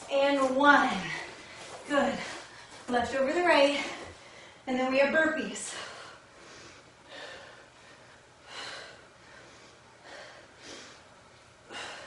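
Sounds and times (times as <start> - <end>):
woman breathing hard: 5.7 - 12.0.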